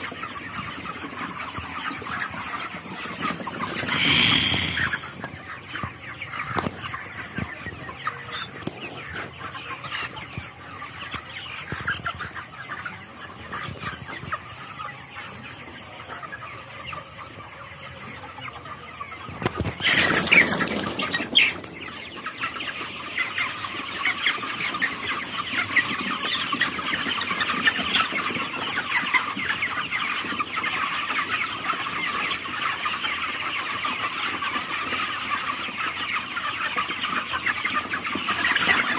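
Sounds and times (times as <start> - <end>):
chickens clucking and peeping: 0.0 - 38.9.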